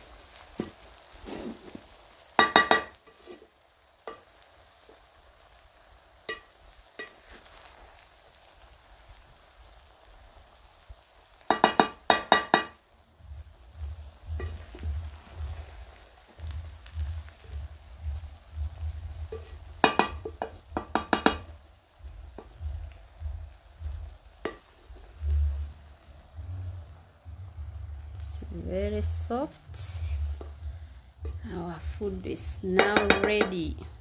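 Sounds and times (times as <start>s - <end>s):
wooden spoon clanking on pot: 2.4s - 3.0s, 11.5s - 12.8s, 19.4s - 21.5s, 32.7s - 33.6s
low rumble: 13.2s - 20.8s, 21.4s - 34.0s.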